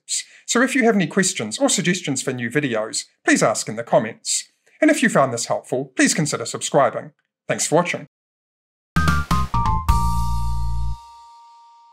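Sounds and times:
short music sting: 0:09.0 - 0:11.0.

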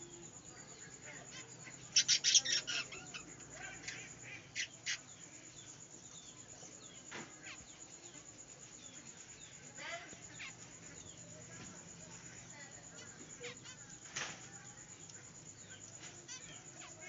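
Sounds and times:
budgerigars chirping and chattering: 0:01.0 - 0:05.3.

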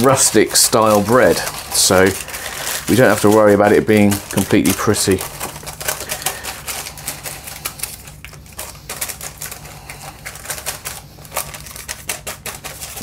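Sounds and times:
baking paper crinkling: 0:00.0 - 0:13.0
low steady hum: 0:00.0 - 0:13.0.

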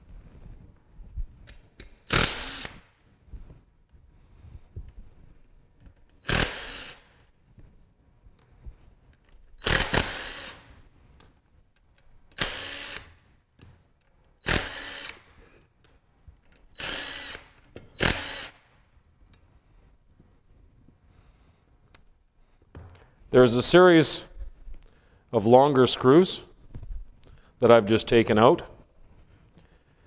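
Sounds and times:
cordless drill running: 0:02.1 - 0:02.8, 0:06.2 - 0:07.1, 0:09.6 - 0:10.6, 0:12.4 - 0:13.2, 0:14.5 - 0:15.2, 0:16.8 - 0:18.6.

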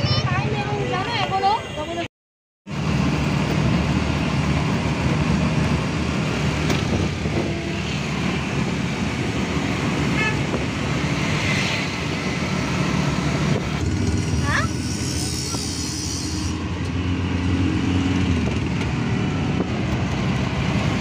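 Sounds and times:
road and traffic noise: 0:00.0 - 0:02.1, 0:02.7 - 0:21.0
auto-rickshaw engine running: 0:02.7 - 0:21.0
vehicle horn: 0:10.1 - 0:10.6.

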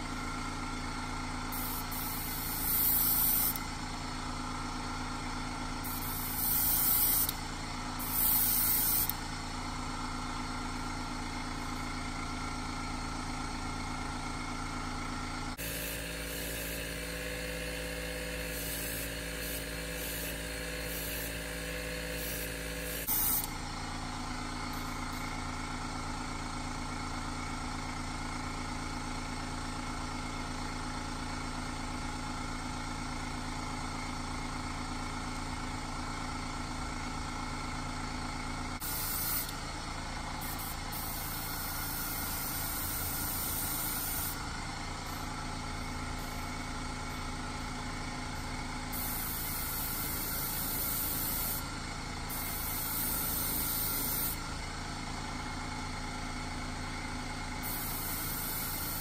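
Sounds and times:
motor hum: 0:00.0 - 0:26.4
airbrush hissing: 0:01.5 - 0:03.6, 0:05.8 - 0:07.4, 0:08.0 - 0:09.2, 0:15.6 - 0:23.5, 0:38.8 - 0:39.5, 0:40.4 - 0:44.4, 0:48.9 - 0:51.6, 0:52.3 - 0:54.4, 0:57.7 - 0:59.0.

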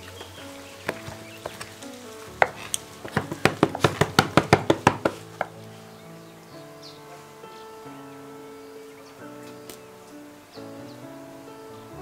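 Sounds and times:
soft background music: 0:00.0 - 0:12.0
knife chopping on wooden board: 0:03.1 - 0:05.2.

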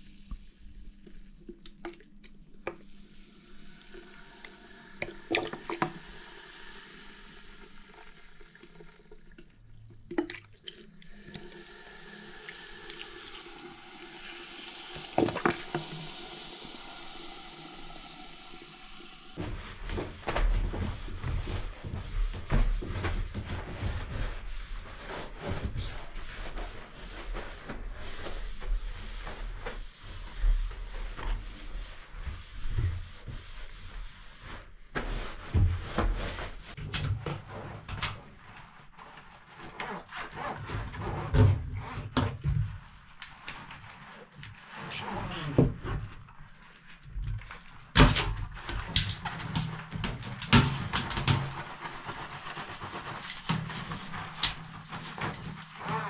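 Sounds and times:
vinegar fizzing hiss: 0:00.0 - 0:19.4
sponge scrubbing bathtub: 0:00.0 - 0:56.0.

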